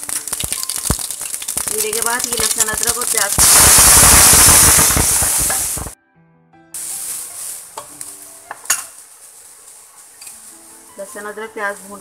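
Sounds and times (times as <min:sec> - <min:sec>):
paste sizzling in hot oil: 0:00.0 - 0:06.0, 0:06.8 - 0:08.0.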